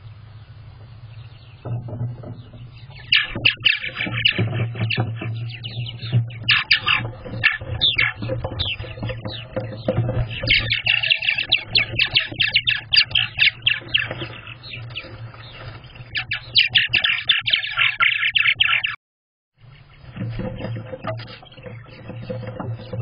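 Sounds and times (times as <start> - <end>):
steady low hum: 0.0 - 16.4
birds chattering: 0.0 - 19.0, 19.6 - 23.0.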